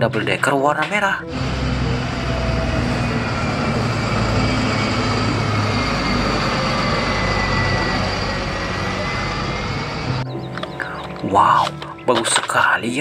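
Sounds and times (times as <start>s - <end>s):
bus diesel engine running: 1.2s - 11.2s
faint high whine: 1.3s - 11.5s.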